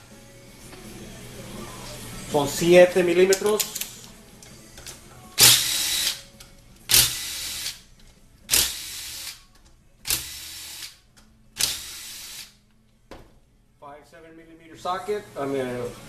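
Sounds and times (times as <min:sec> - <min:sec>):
power tool bursts: 0:05.4 - 0:06.2, 0:06.9 - 0:07.8, 0:08.5 - 0:09.4, 0:11.6 - 0:12.6.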